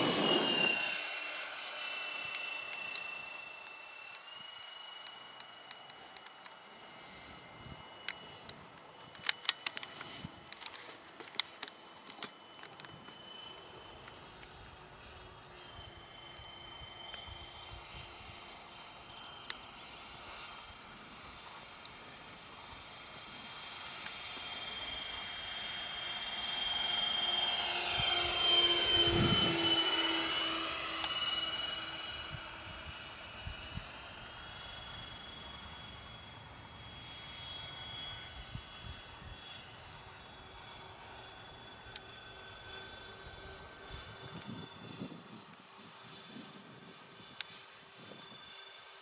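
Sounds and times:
model jet fans whining: 0:00.0 - 0:49.0.

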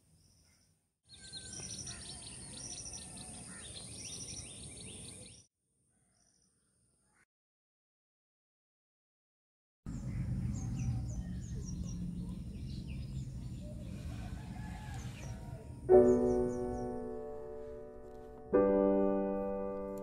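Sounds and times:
birds chirping: 0:00.2 - 0:07.2, 0:09.9 - 0:18.1
piano chords: 0:15.8 - 0:20.0.

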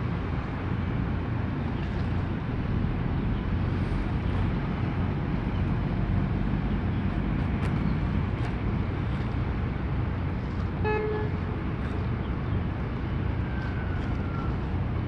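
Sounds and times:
harbour background rumble: 0:00.0 - 0:15.0
short horn-like beep: 0:10.8 - 0:11.4.

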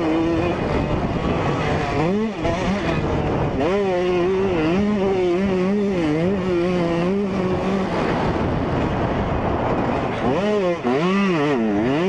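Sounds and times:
rough rushing noise: 0:00.0 - 0:12.0
two-stroke motorcycle engine revving: 0:00.0 - 0:12.0.

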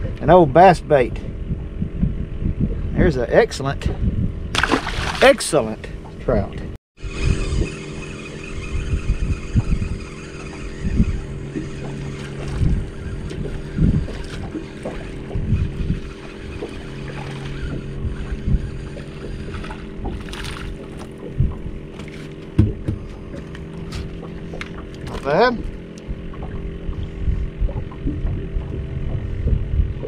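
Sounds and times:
steady hum: 0:00.0 - 0:30.0
wind buffeting microphone: 0:00.0 - 0:30.0
fish splashing at surface: 0:04.6 - 0:05.4
low thumps: 0:09.0 - 0:30.0.

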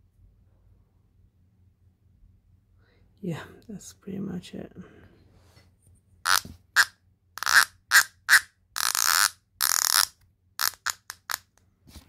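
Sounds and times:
bicycle hub ratcheting: 0:06.3 - 0:11.4.

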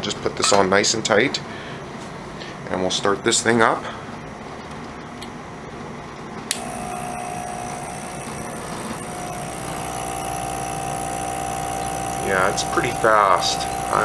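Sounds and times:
pump switch click: 0:06.5 - 0:07.0
electric air pump humming: 0:06.5 - 0:14.0.

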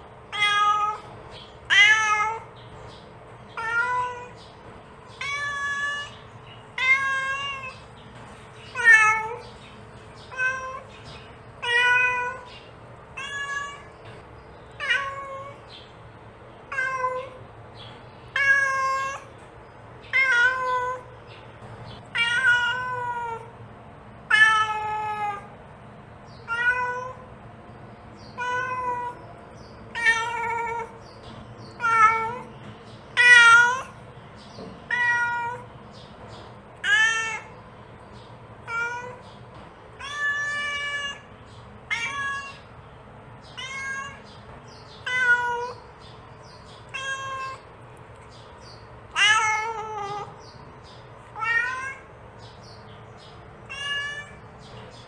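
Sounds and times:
cat meowing: 0:00.3 - 0:02.5, 0:03.5 - 0:04.4, 0:05.1 - 0:07.8, 0:08.7 - 0:09.4, 0:10.2 - 0:11.0, 0:11.6 - 0:12.5, 0:13.1 - 0:14.2, 0:14.8 - 0:15.6, 0:16.7 - 0:17.4, 0:18.3 - 0:19.4, 0:20.1 - 0:21.1, 0:22.1 - 0:23.5, 0:24.3 - 0:25.5, 0:26.4 - 0:27.3, 0:28.2 - 0:29.2, 0:29.9 - 0:31.1, 0:31.7 - 0:32.5, 0:33.1 - 0:34.0, 0:34.8 - 0:35.7, 0:36.8 - 0:37.6, 0:38.6 - 0:39.4, 0:40.0 - 0:42.8, 0:43.4 - 0:46.0, 0:46.8 - 0:47.7, 0:49.1 - 0:50.6, 0:51.3 - 0:52.1, 0:53.6 - 0:54.6.

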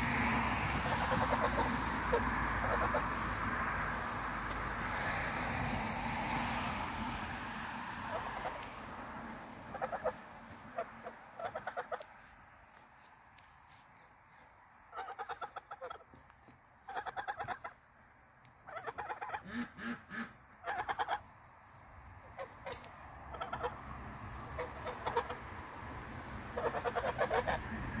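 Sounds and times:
geese honking: 0:00.0 - 0:03.4, 0:06.2 - 0:08.6, 0:09.6 - 0:12.1, 0:14.9 - 0:16.0, 0:16.9 - 0:17.8, 0:18.7 - 0:21.3, 0:22.4 - 0:25.5, 0:26.3 - 0:28.0.

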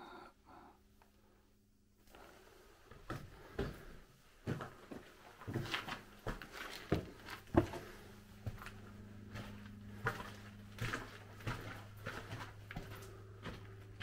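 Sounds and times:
footsteps on stone rubble: 0:04.4 - 0:14.0.

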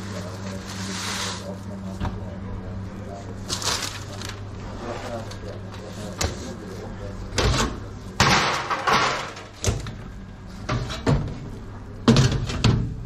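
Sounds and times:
low electrical hum: 0:00.0 - 0:13.0
metal cabinet door knocks and bangs: 0:08.2 - 0:09.8, 0:10.7 - 0:11.4, 0:12.0 - 0:13.0.

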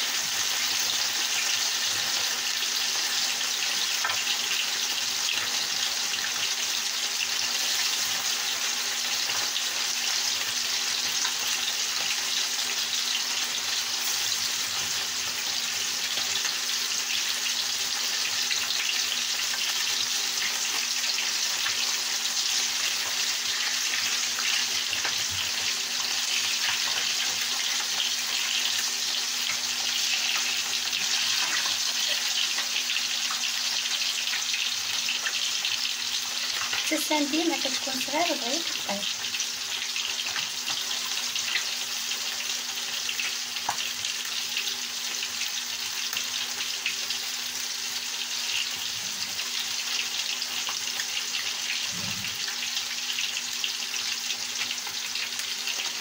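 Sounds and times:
fish sizzling in hot oil: 0:00.0 - 0:56.0.

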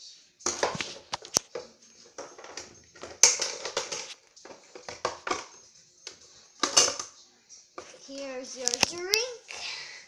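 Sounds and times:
plastic toy pieces clattering: 0:02.2 - 0:05.6, 0:08.6 - 0:09.2.

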